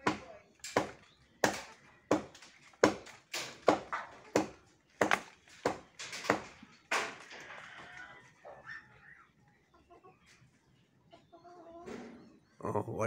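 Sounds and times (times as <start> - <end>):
blade chopping tree branch: 0.0 - 7.2.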